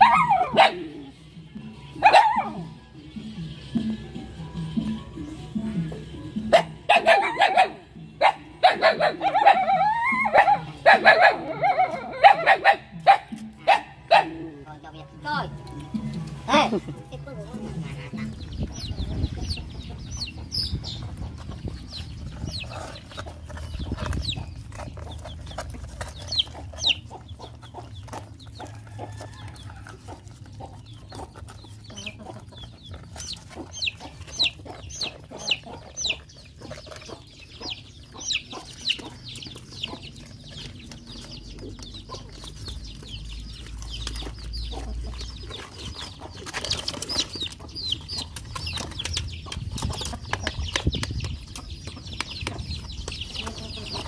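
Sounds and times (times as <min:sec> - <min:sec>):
chickens clucking: 0:00.0 - 0:54.0
puppies eating from metal basin: 0:13.1 - 0:54.0.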